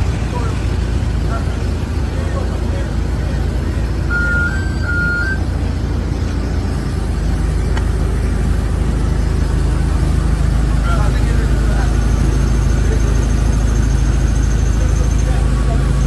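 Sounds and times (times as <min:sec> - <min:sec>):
low machinery rumble: 0:00.0 - 0:16.0
two-pitch beep: 0:04.1 - 0:05.5.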